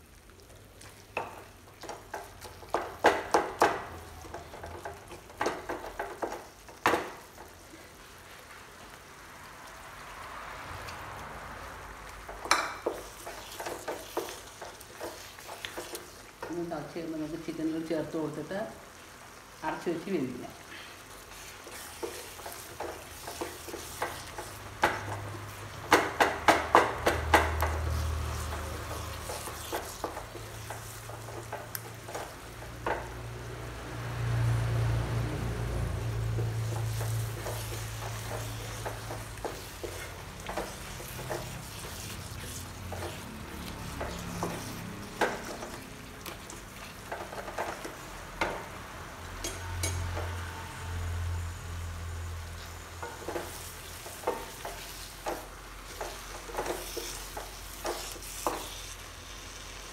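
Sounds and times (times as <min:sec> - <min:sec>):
food sizzling in a pan: 0:00.0 - 0:59.9
spoon scraping a pan: 0:12.2 - 0:16.5, 0:21.1 - 0:33.1, 0:36.3 - 0:48.6, 0:49.3 - 0:51.5, 0:52.3 - 0:59.9.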